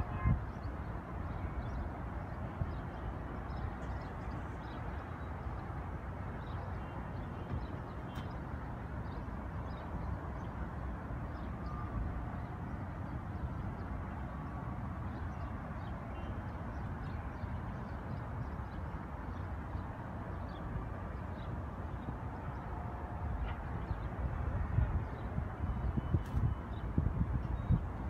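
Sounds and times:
distant traffic rumble: 0.0s - 28.0s
wind on microphone: 23.0s - 28.0s.

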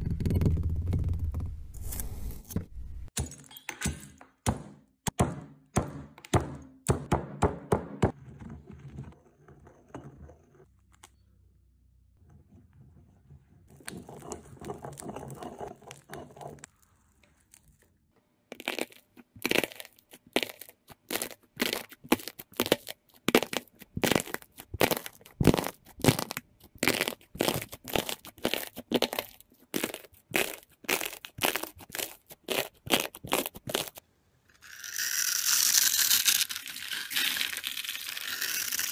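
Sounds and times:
stone pestle pounding in mortar: 4.4s - 8.2s
brittle slime crust crackling: 18.6s - 34.0s.

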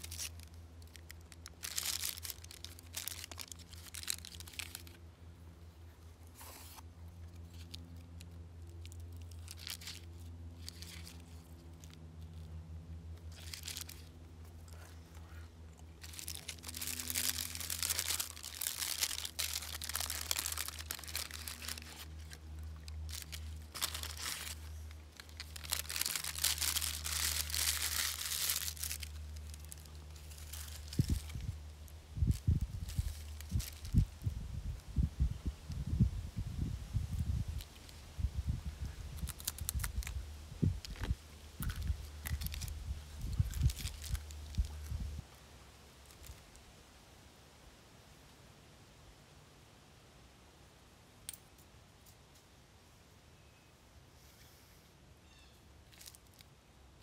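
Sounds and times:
paper wrappings crinkling: 0.0s - 5.0s, 6.4s - 12.5s, 13.2s - 14.2s, 16.0s - 31.6s, 32.3s - 34.0s, 39.2s - 40.1s, 40.8s - 44.9s
steady low hum: 0.0s - 55.2s.

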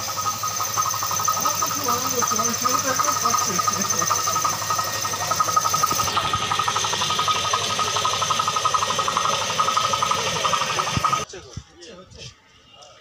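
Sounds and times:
high whine: 0.0s - 11.3s
machine motor with pulsing rattle: 0.0s - 11.3s.

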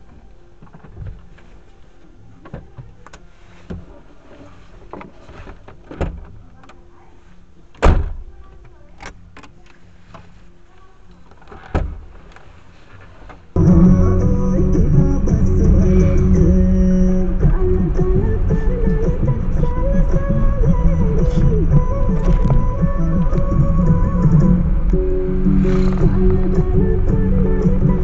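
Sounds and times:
car cabin low rumble: 13.6s - 28.0s.

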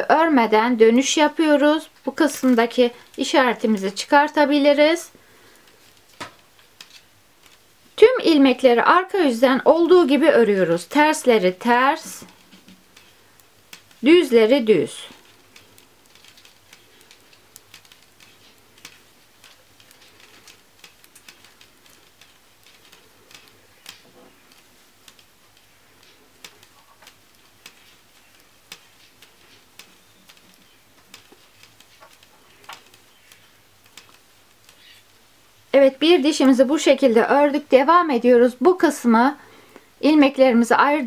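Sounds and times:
metal knitting needles clicking: 5.5s - 7.6s, 10.6s - 35.2s.

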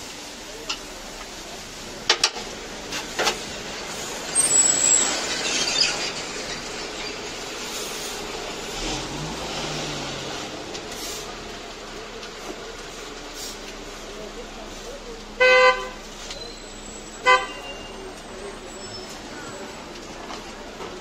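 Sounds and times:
street traffic: 0.0s - 21.0s
rushing noise: 1.6s - 11.7s.

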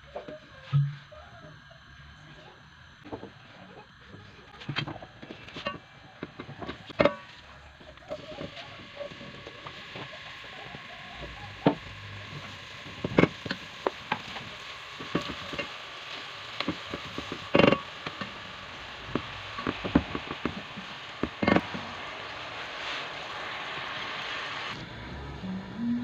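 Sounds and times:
onions sizzling in hot oil: 1.4s - 25.0s.

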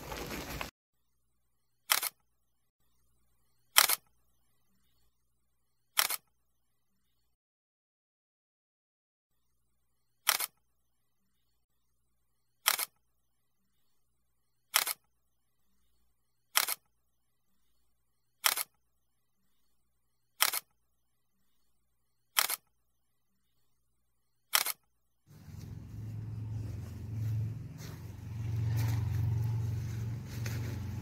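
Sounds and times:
camera shutter double click: 3.8s - 4.0s, 10.3s - 10.5s, 18.4s - 18.7s, 20.4s - 20.7s, 22.4s - 22.6s, 24.5s - 24.8s
steady low rumble: 25.3s - 31.0s.

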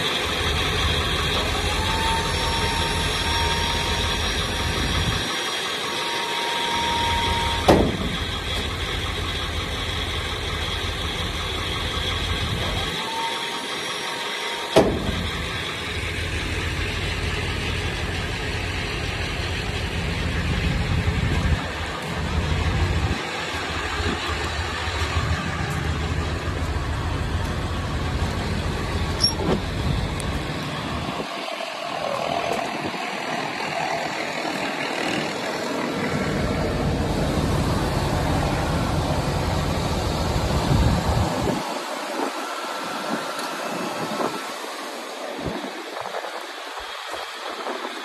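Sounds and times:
truck engine running: 0.0s - 48.0s.

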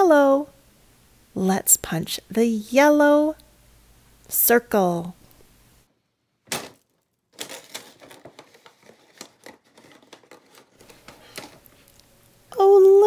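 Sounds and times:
paper rustling and crinkling: 6.5s - 12.0s.

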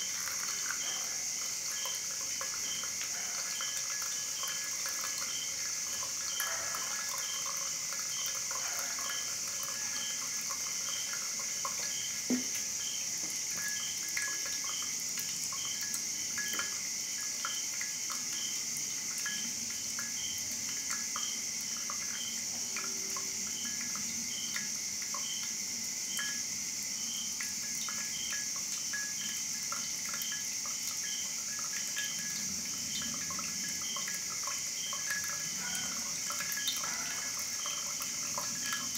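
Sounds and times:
coffee dripping into glass: 0.0s - 38.9s
steady high hiss: 0.0s - 38.9s
water trickling onto coffee grounds: 0.0s - 38.9s.

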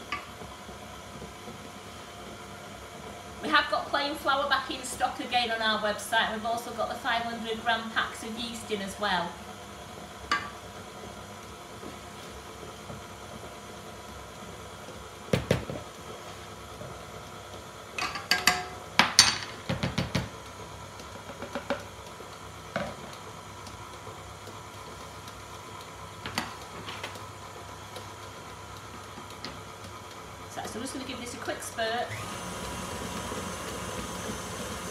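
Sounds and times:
stand mixer humming: 0.0s - 34.9s.

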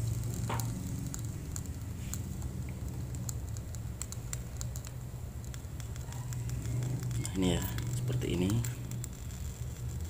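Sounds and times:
egg crackling in wok: 0.0s - 10.0s
low hum: 0.0s - 10.0s.

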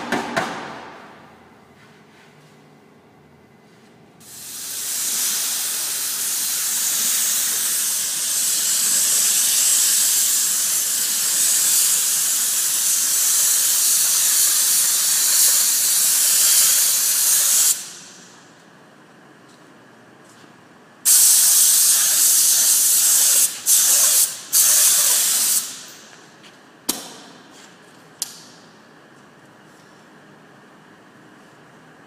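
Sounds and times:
paint spray gun hissing: 4.2s - 18.1s, 21.1s - 26.0s.

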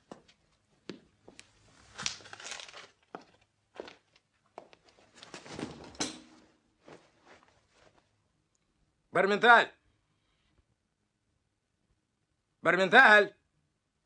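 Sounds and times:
faint rustling: 1.2s - 8.2s.

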